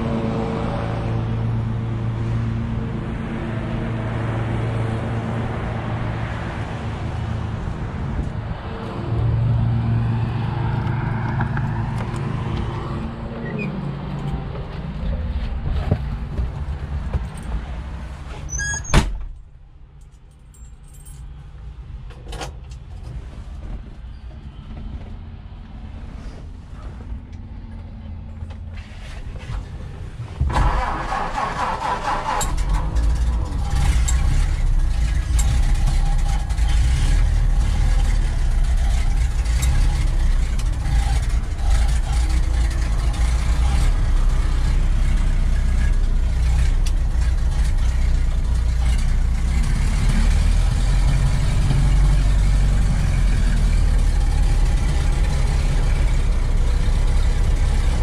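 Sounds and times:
car engine idling: 26.2 - 58.0
starter cranking engine: 30.5 - 36.7.

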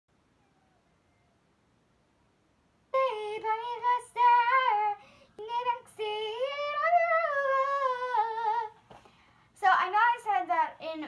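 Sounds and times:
young girl singing: 2.9 - 8.8, 9.6 - 11.0.

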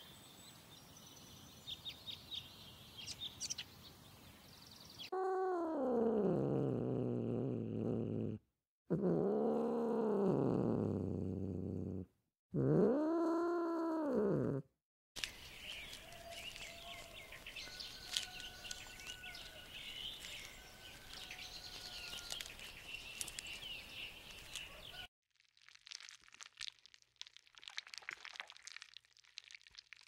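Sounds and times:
birds chirping and whistling: 15.3 - 25.0.

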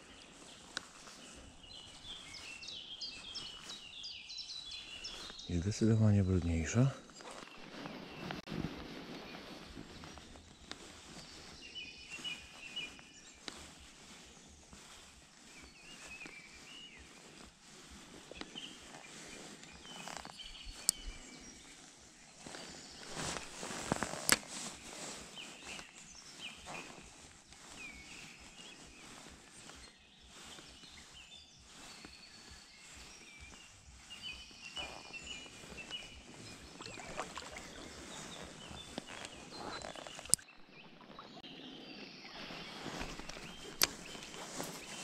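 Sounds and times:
birds calling: 0.0 - 45.0
forest stream: 0.0 - 45.0.

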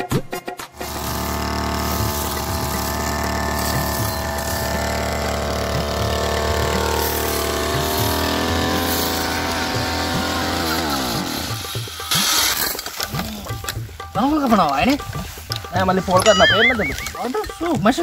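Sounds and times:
brush cutter engine running: 0.8 - 13.8.

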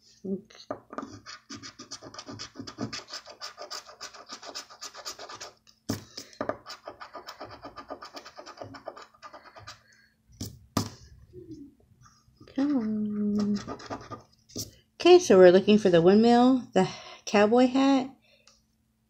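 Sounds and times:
chip scraping scratch-off ticket: 1.1 - 5.6.

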